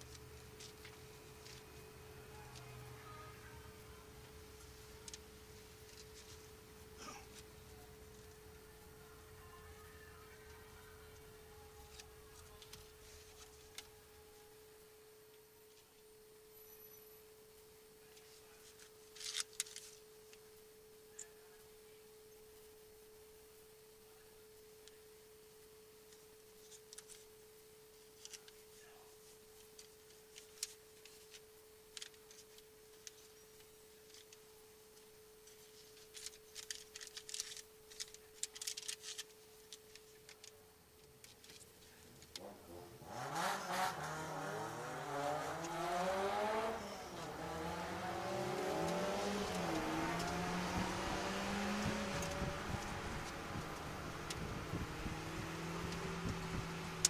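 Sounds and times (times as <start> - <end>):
soft clicks and rustles: 0.0 - 8.7, 10.0 - 14.5, 15.3 - 42.5, 48.3 - 57.0
faint steady tone: 0.0 - 43.0.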